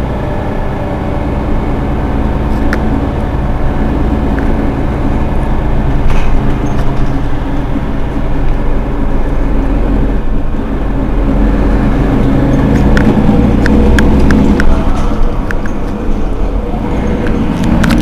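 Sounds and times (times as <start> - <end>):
bus engine idling: 0.0 - 18.0.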